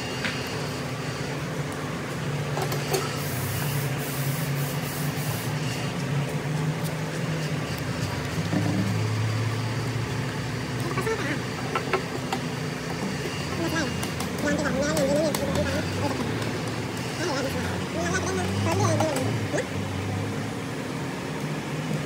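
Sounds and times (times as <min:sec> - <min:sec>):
low mechanical hum: 0:00.0 - 0:22.0
hiss: 0:02.9 - 0:05.6.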